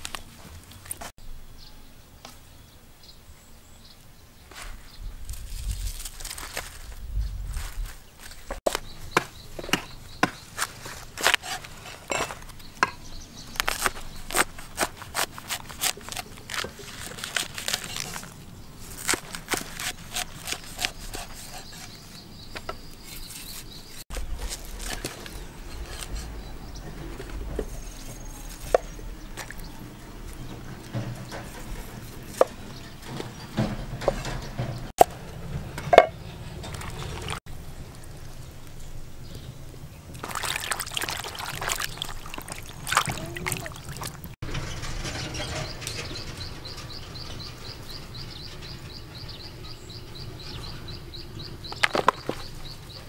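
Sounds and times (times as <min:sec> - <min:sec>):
low rumble: 0:06.7 - 0:08.1, 0:24.1 - 0:32.2.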